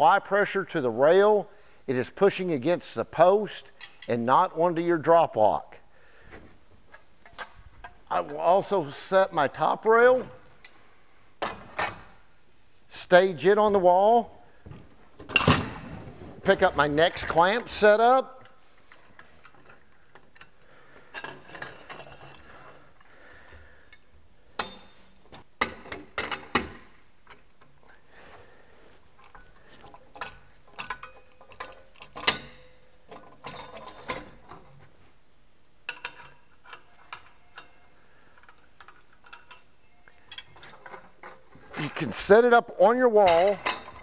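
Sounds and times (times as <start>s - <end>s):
metallic clicks and clanks: 3.7s - 4.2s, 16.5s - 22.7s, 23.9s - 28.0s, 29.2s - 34.9s, 35.8s - 44.0s.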